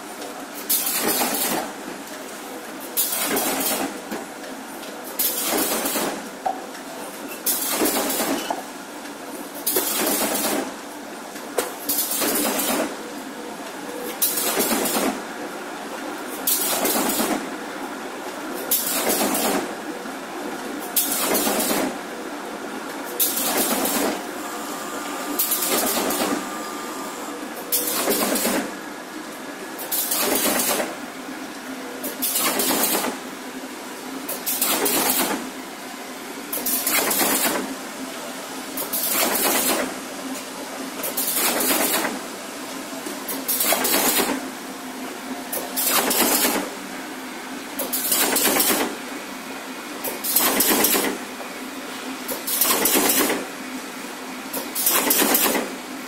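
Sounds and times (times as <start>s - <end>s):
machine humming: 22.6s - 29.4s.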